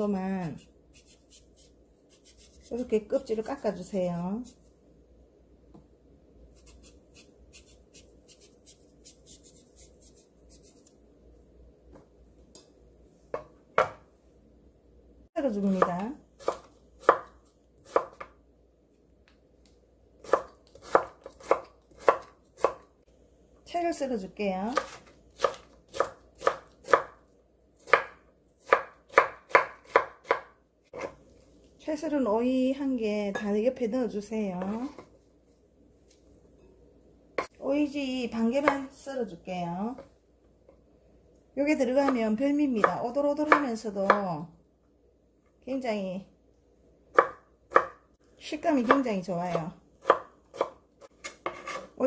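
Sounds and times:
knife scraping cucumber skin: 0.6s - 2.8s, 6.6s - 10.9s
knife chopping on wooden board: 13.3s - 14.0s, 20.2s - 22.8s, 24.7s - 27.2s, 27.8s - 31.2s, 47.1s - 48.0s, 50.0s - 51.9s.

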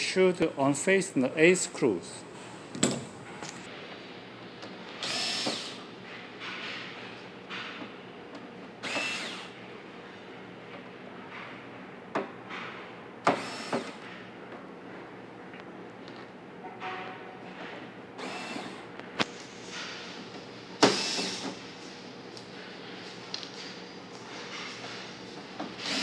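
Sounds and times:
power screwdriver whirring: 5.0s - 5.8s, 8.8s - 9.5s, 13.3s - 14.0s, 18.2s - 18.8s, 20.8s - 21.5s, 25.8s - 26.0s.

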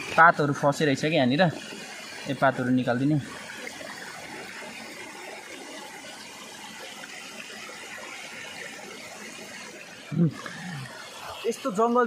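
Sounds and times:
water running over rocks: 0.0s - 12.0s.

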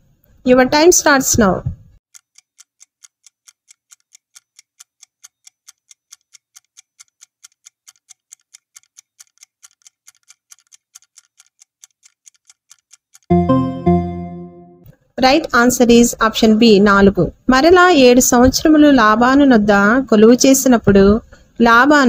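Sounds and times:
clock ticking: 2.1s - 13.3s.

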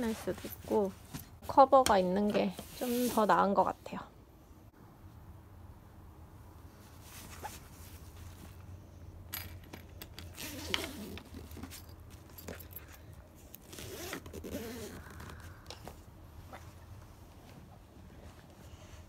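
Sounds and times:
fabric rustling: 0.0s - 3.6s, 6.7s - 8.8s
zipper being drawn: 10.3s - 11.6s, 13.6s - 15.3s.

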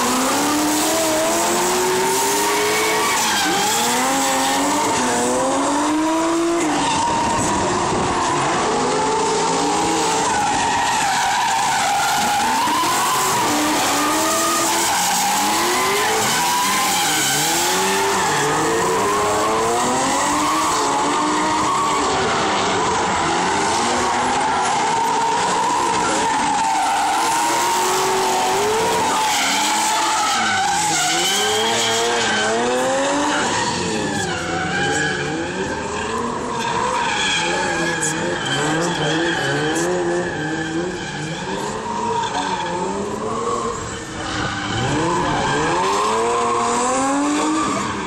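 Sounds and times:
car engines revving: 0.0s - 48.0s
tyres squealing on asphalt: 0.0s - 48.0s.

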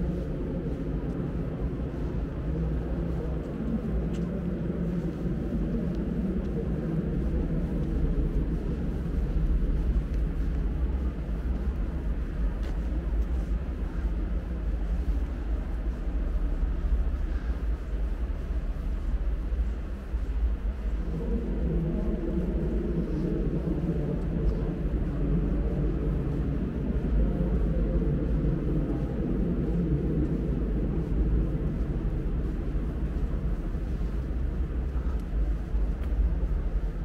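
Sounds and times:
low rumble of background noise: 0.0s - 37.0s.

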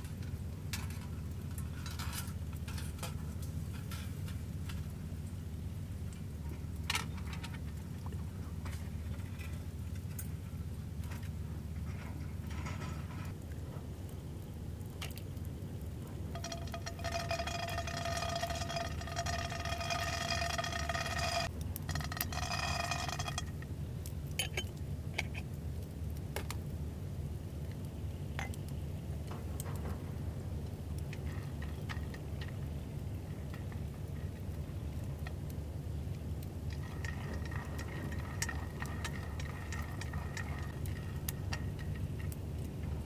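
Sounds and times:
campfire crackling: 0.0s - 43.0s
low steady rumble: 0.0s - 43.0s
beans stirred in frying pan: 16.3s - 23.7s, 30.8s - 43.0s.

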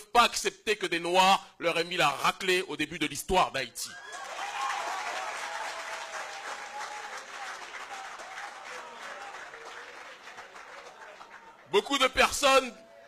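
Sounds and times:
audience applauding: 3.9s - 12.6s.

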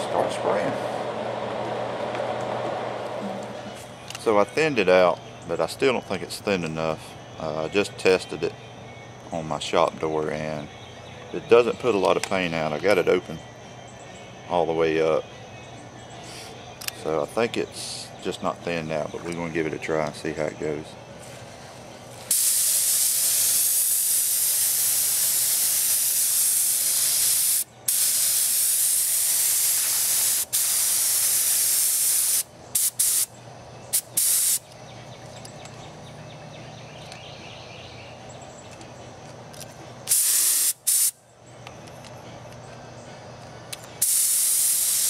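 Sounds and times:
paint spray gun hissing: 22.3s - 33.3s, 33.9s - 34.6s, 40.1s - 41.2s, 44.0s - 45.0s.

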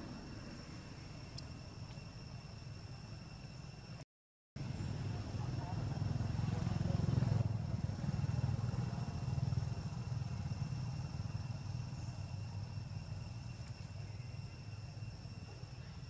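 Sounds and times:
faint insect drone: 0.0s - 4.0s, 4.6s - 16.0s
motorcycle engine rumbling: 4.6s - 15.2s.

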